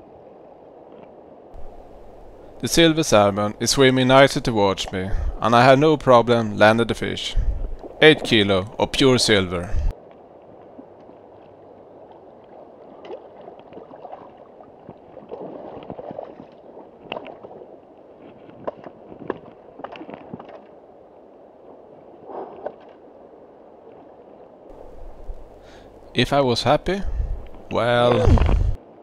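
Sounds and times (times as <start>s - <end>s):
water splashing and sloshing: 0.0s - 29.0s
river water rushing over stones: 1.6s - 3.8s.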